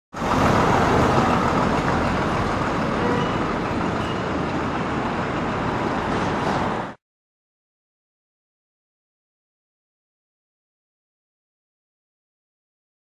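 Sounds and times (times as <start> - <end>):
road traffic: 0.1 - 7.0.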